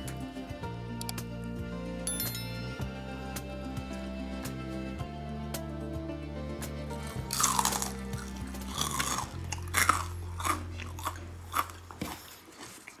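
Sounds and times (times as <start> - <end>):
soft background music: 0.0 - 13.0
crunchy food being chewed: 7.0 - 13.0.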